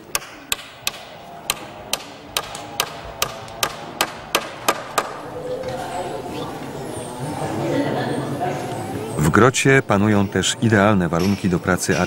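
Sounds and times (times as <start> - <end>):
hand tool striking bamboo poles: 0.0 - 5.2.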